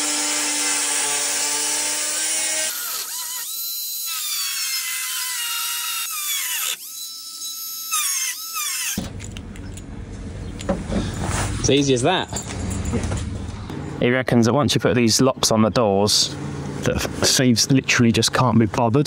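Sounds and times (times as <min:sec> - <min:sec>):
drill running: 0:00.0 - 0:09.0
grinder cutting metal: 0:00.0 - 0:09.0.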